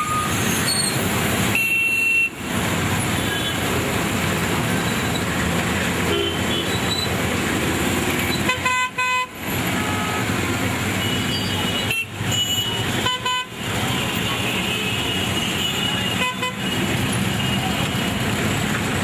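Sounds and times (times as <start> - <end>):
vehicle horns beeping: 0.0 - 2.4, 6.1 - 7.1, 8.3 - 17.7
traffic and engine noise: 0.0 - 19.0.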